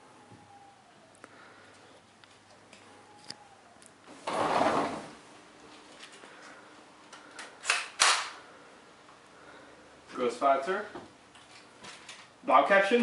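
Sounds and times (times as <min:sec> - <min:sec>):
sliding glass door rolling: 0:04.1 - 0:05.3.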